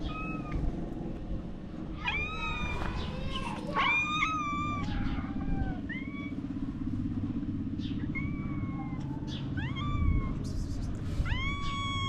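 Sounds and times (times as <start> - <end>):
cats meowing: 0.0 - 0.7, 1.9 - 6.4, 7.9 - 12.0
steady low rumble: 0.0 - 12.0.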